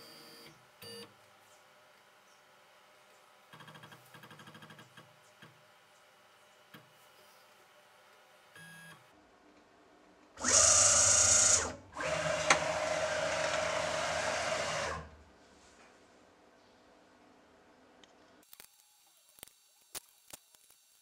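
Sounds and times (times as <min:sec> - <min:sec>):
milling machine motors whining: 0:10.4 - 0:15.2.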